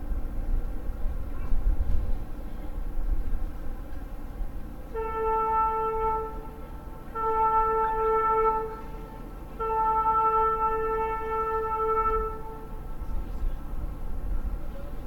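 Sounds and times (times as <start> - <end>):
ship's whistle blasts: 4.9 - 12.9.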